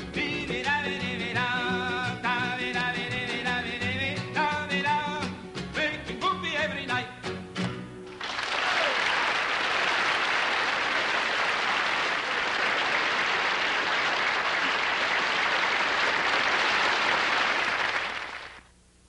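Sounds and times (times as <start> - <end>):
acoustic guitars and double bass: 0.0 - 8.2
audience applause: 8.1 - 18.7.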